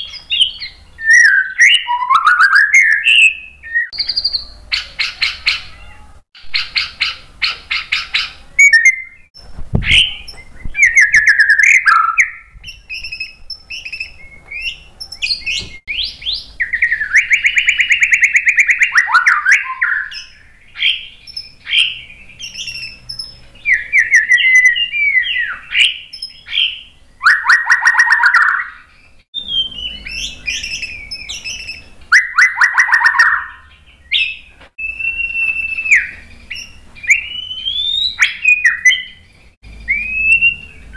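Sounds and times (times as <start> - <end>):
bird singing varied song: 0.0 - 40.9.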